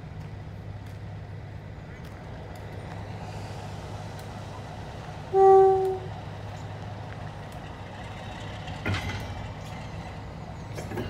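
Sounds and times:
diesel locomotive engine running: 0:00.0 - 0:11.0
wagons clanking: 0:07.7 - 0:11.0.

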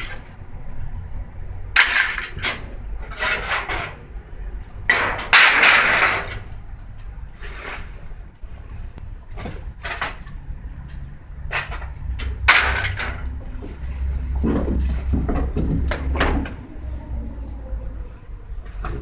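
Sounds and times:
scrap metal clanking: 0:01.8 - 0:04.1, 0:04.9 - 0:06.5, 0:09.3 - 0:10.4, 0:11.5 - 0:16.8
low rumble: 0:12.0 - 0:18.6.

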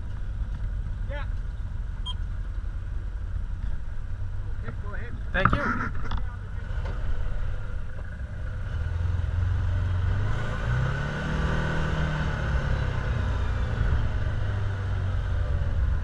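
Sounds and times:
vehicle engine running and revving: 0:00.0 - 0:16.0.

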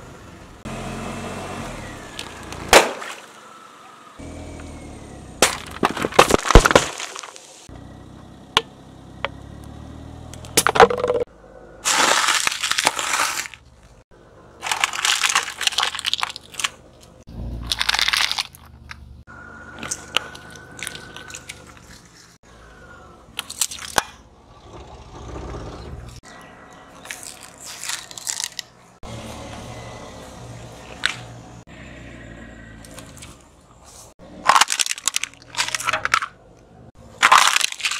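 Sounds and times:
low engine hum: 0:00.0 - 0:05.8, 0:07.6 - 0:11.8, 0:18.6 - 0:23.4, 0:28.7 - 0:34.4
soda cans bursting under tyre: 0:05.4 - 0:07.7, 0:11.8 - 0:13.6
aluminium foil crinkling: 0:14.6 - 0:16.8, 0:27.0 - 0:28.7.

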